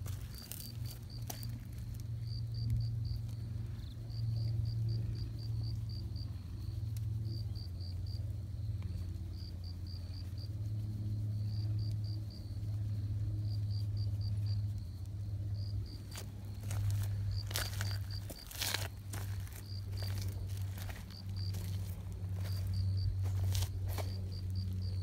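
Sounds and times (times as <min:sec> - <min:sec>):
faint crickets chirping: 0:00.0 - 0:25.0.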